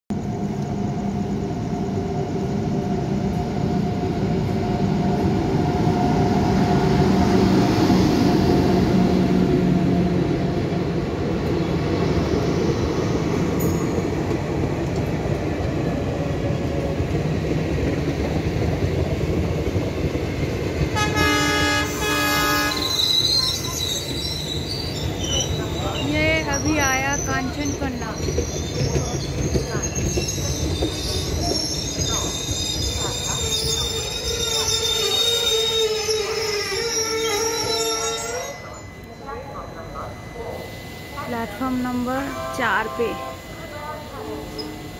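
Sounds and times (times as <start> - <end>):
train wheels rumbling on rails: 0.1 - 44.8
train horn: 20.9 - 23.1, 40.6 - 44.9.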